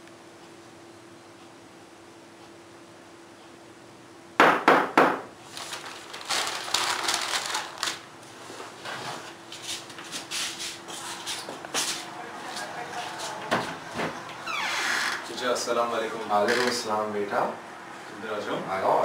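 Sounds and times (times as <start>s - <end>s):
knocks on wooden door: 4.4s - 5.3s
newspaper crackling and rustling: 5.4s - 10.8s.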